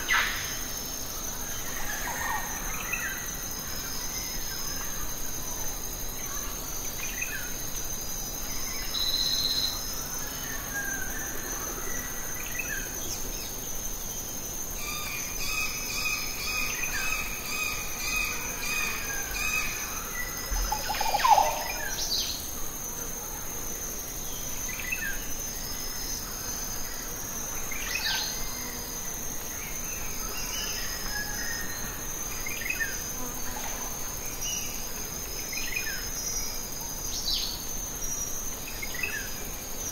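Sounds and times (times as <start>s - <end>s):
insects chirring: 0.0s - 39.9s.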